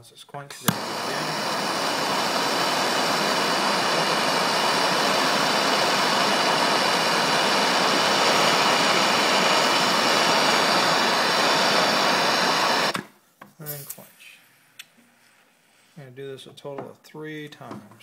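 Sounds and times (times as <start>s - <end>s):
gas torch flame hissing: 0.6s - 13.0s.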